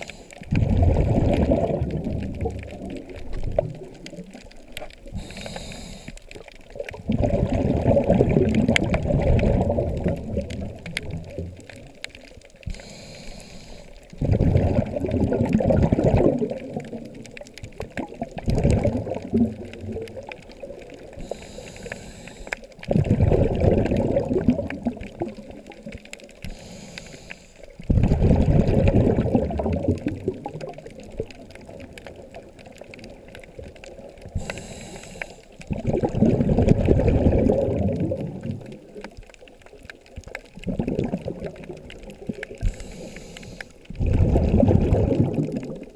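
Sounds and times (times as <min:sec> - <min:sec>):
regulator hiss on inhale: 0:00.0 - 0:00.5, 0:05.0 - 0:06.5, 0:12.6 - 0:14.2, 0:21.0 - 0:22.9, 0:26.3 - 0:27.8, 0:34.2 - 0:35.7, 0:42.5 - 0:44.0
exhaled bubbles gurgling underwater: 0:00.0 - 0:45.9.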